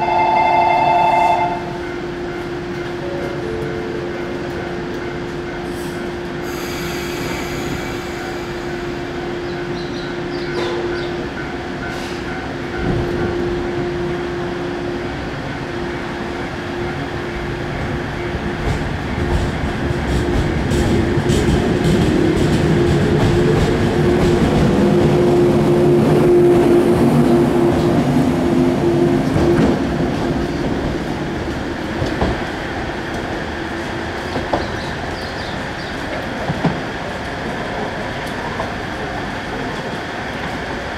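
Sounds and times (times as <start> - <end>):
train hum: 0.0 - 40.9
train wheels running: 14.5 - 40.9.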